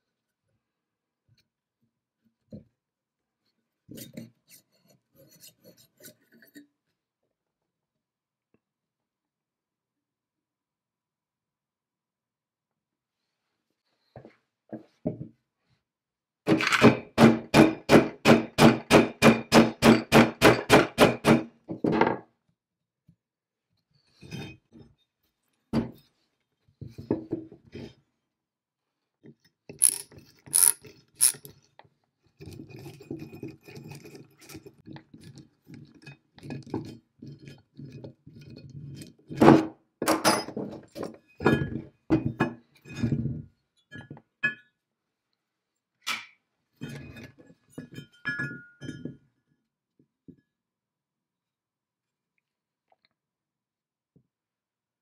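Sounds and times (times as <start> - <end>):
metal clinks: 29.8 - 31.5
metal parts knocking: 29.8 - 31.5
ratchet wrench clicking: 29.8 - 31.5.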